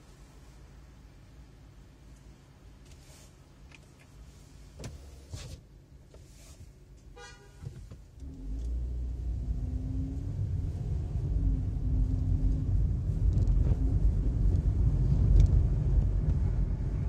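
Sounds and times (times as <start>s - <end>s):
car accelerating: 8.2s - 17.0s.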